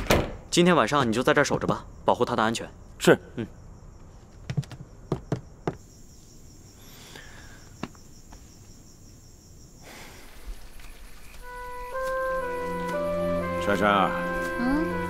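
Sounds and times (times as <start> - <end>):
crickets chirping: 0.0 - 15.0
soft knocks: 4.4 - 5.8
gentle music: 11.4 - 15.0.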